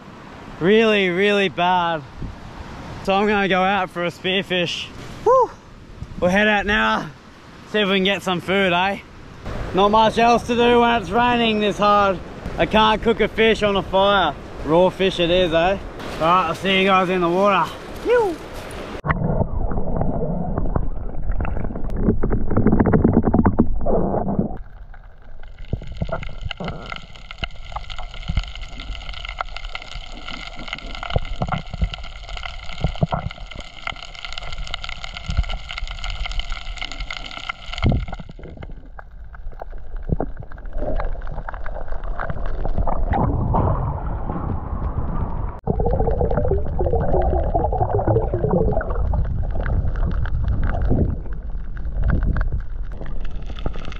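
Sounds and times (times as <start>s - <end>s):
water splashing: 15.8s - 53.9s
underwater rushing and gurgling: 18.7s - 53.9s
small underwater clicks: 24.5s - 43.2s, 45.8s - 53.9s.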